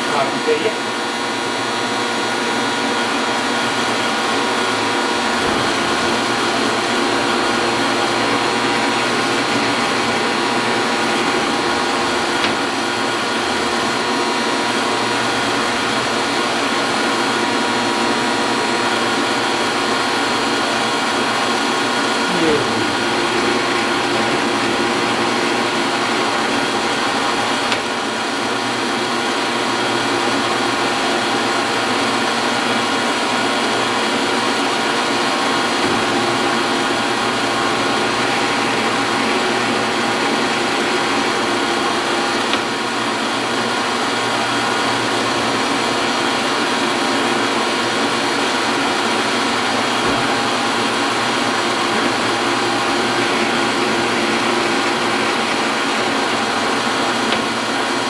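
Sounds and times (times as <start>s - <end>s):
metal lathe motor hum: 0.0s - 58.0s.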